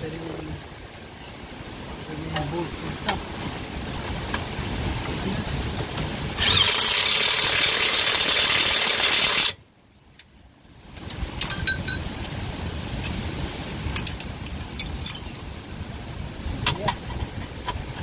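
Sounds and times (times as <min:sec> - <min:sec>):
impact wrench running: 0:06.4 - 0:09.6.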